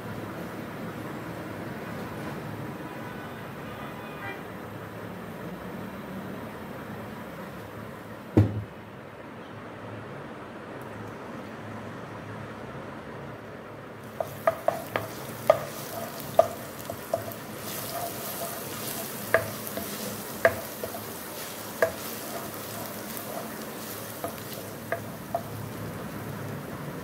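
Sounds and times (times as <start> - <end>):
paste sizzling in hot oil: 14.0 - 27.0
spoon tapping against pan: 14.1 - 25.8.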